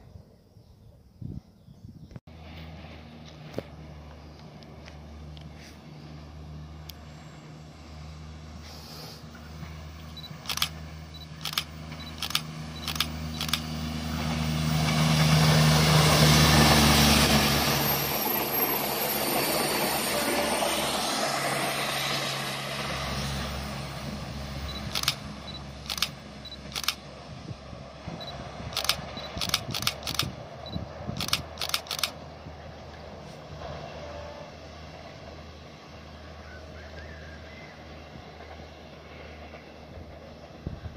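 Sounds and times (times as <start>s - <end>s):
diesel train passing: 2.3s - 40.9s
sharp clicks: 10.2s - 13.7s, 24.7s - 27.0s, 28.7s - 30.4s, 31.2s - 32.2s.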